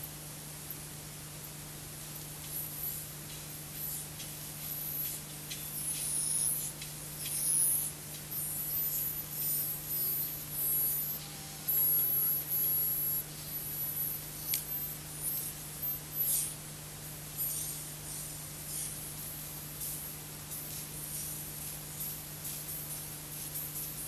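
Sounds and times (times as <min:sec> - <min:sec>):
steady low hum: 0:00.0 - 0:24.0
garbled high-pitched chirping: 0:05.0 - 0:13.2.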